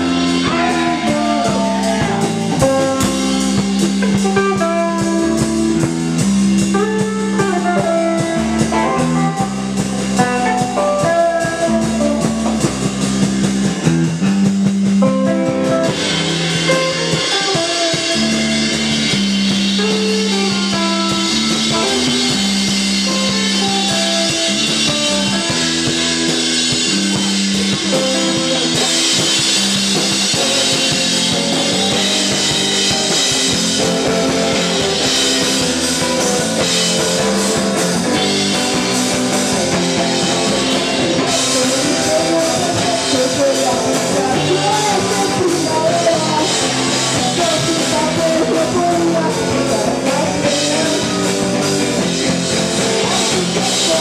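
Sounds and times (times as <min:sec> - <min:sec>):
bass guitar: 0:00.0 - 0:54.0
drum kit: 0:00.0 - 0:54.0
electric guitar melody: 0:00.0 - 0:54.0.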